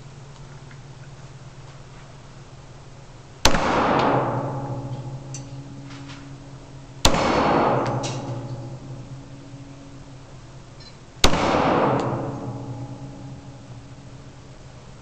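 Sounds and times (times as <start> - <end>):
pistol shots echoing: 3.4 - 10.3, 11.2 - 14.4.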